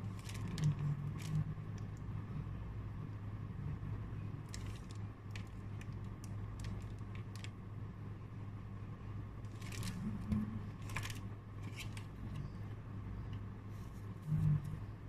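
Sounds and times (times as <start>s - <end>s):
low room hum: 0.0s - 15.0s
trading cards rustling: 9.5s - 12.1s.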